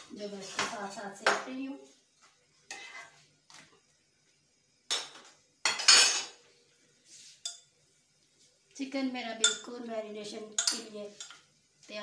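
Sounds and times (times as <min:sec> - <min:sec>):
utensils clinking against cookware: 0:04.9 - 0:06.4, 0:09.4 - 0:09.7, 0:10.4 - 0:11.4.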